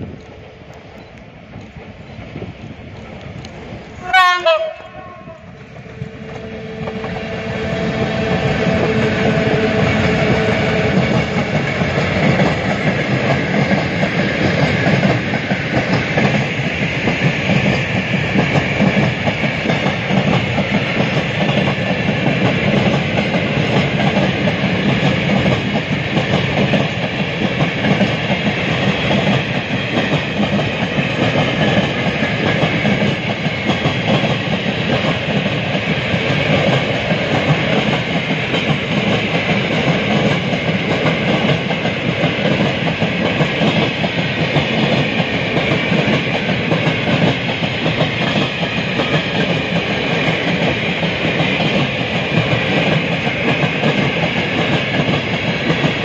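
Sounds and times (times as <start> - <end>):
train horn blast: 4.0 - 11.4.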